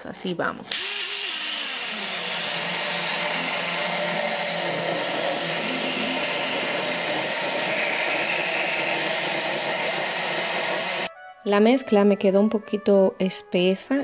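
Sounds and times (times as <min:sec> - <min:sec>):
blender motor running: 0:00.7 - 0:11.1.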